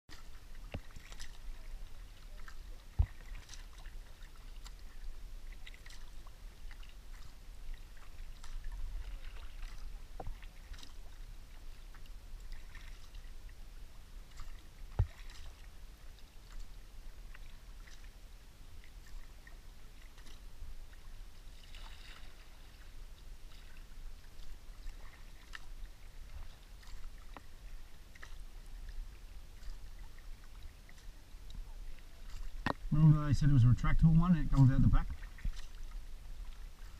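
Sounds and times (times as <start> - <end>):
paddle splashing water: 0.1 - 36.9
water lapping at hull: 0.1 - 36.9.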